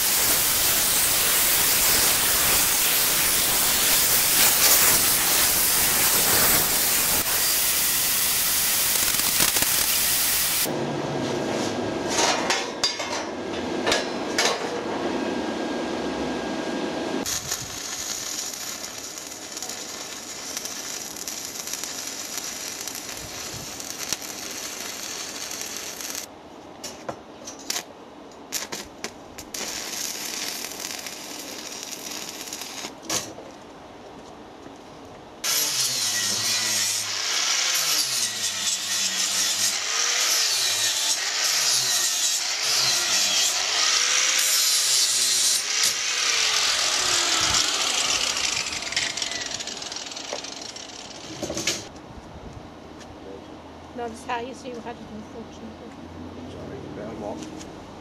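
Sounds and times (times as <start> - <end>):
angle grinder: 0.0 - 10.7, 17.2 - 26.3, 35.4 - 51.9
welding arc crackling and hissing: 0.0 - 10.7, 17.2 - 26.3, 28.5 - 33.3, 35.4 - 51.9.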